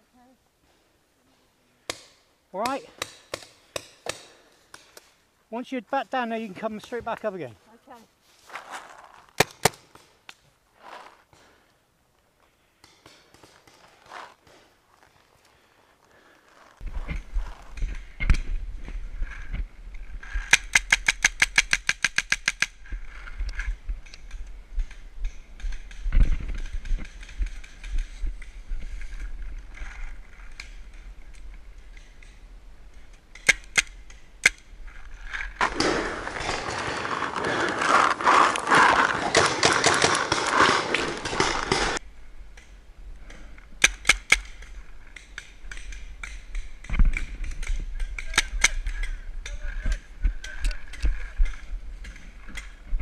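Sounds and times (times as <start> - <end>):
paintball marker firing shots: 9.4 - 10.1, 39.3 - 42.0.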